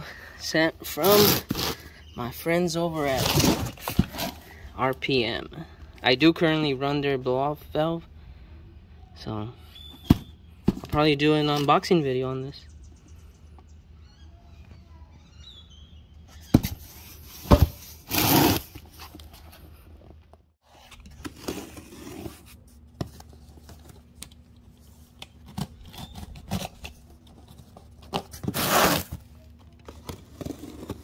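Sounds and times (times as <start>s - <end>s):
cardboard rustling: 16.5s - 31.0s
blade scraping cardboard: 17.5s - 18.8s, 28.3s - 29.2s
utility knife slicing packing tape: 18.1s - 18.7s, 28.4s - 29.2s.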